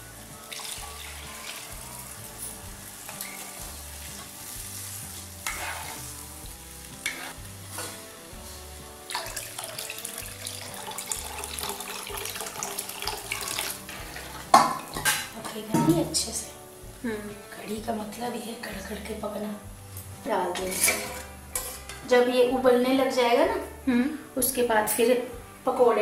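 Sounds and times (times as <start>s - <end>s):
water pouring into pan: 0.2s - 8.3s, 9.0s - 16.0s
spatula scraping and clinking pan: 0.5s - 4.5s, 5.1s - 8.1s, 13.3s - 16.1s, 20.6s - 22.1s.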